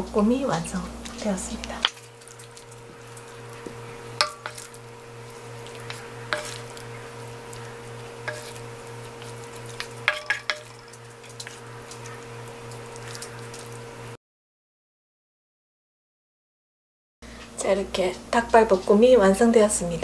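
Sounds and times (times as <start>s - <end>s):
steady low hum: 0.0s - 14.2s
wooden spoon scraping pan: 1.0s - 13.5s
wood tapping pan and plate: 3.7s - 4.7s, 5.8s - 6.8s, 8.2s - 8.6s, 9.8s - 11.0s.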